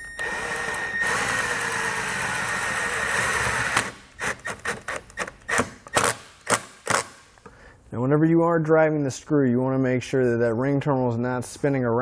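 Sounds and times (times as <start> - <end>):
cordless drill driving screw into metal: 0.2 - 7.3.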